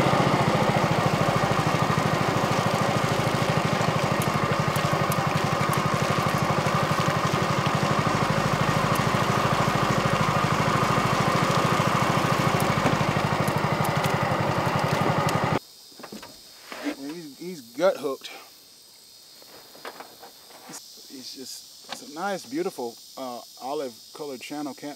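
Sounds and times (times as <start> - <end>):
small boat engine running: 0.0 - 15.6.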